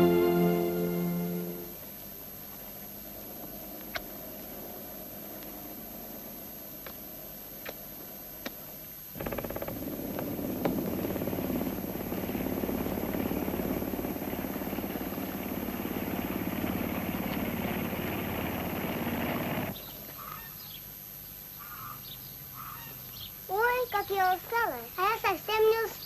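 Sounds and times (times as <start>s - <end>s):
engine running with fast pulsing: 9.2s - 19.8s.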